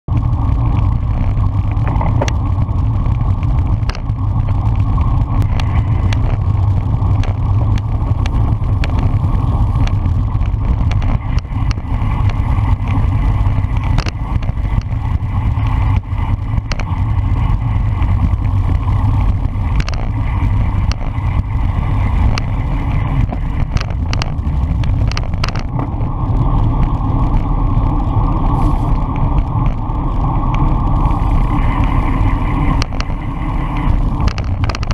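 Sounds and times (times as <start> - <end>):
tyre and road noise: 0.0 - 34.9
wind rumble on microphone: 0.0 - 34.9
bicycle clicks and knocks: 0.1 - 27.4, 31.6 - 34.9.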